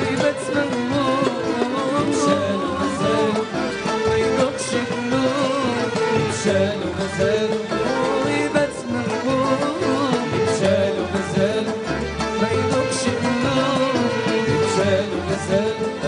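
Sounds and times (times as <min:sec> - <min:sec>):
band and percussion: 0:00.0 - 0:16.0
man singing: 0:00.0 - 0:16.0
violin section melody: 0:00.0 - 0:16.0.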